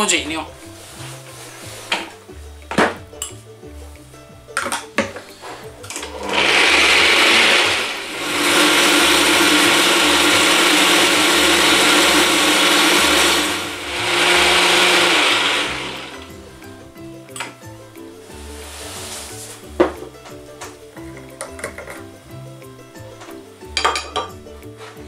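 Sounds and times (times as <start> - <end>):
blender running: 5.9 - 16.4.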